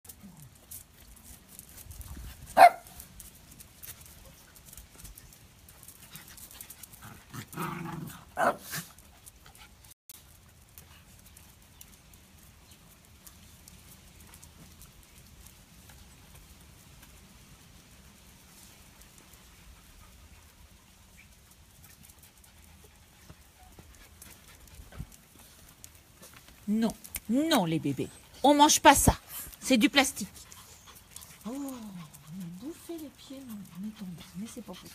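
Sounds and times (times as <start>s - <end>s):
dogs scuffling on paving: 0.1s - 34.9s
small dogs barking and yipping: 2.4s - 3.2s, 8.1s - 9.1s.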